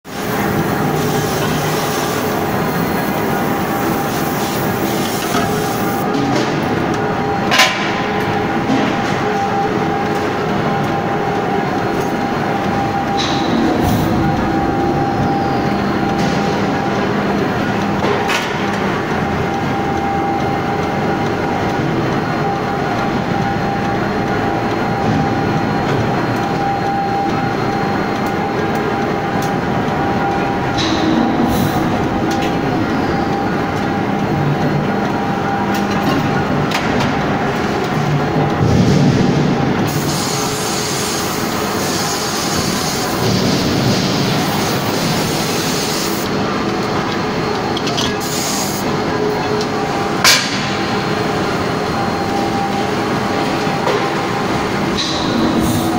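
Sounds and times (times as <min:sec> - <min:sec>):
forging machinery rumble and hiss: 0:00.1 - 0:06.0, 0:38.6 - 0:46.6
machinery rumble: 0:00.1 - 0:48.2, 0:48.8 - 0:55.9.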